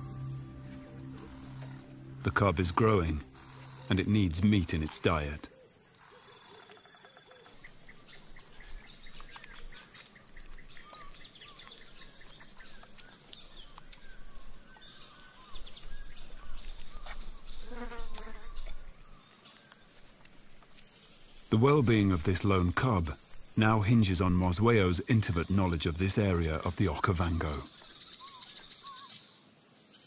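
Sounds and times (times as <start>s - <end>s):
birds chirping and calling: 0.0s - 19.9s, 20.5s - 30.0s
insects: 0.6s - 21.9s.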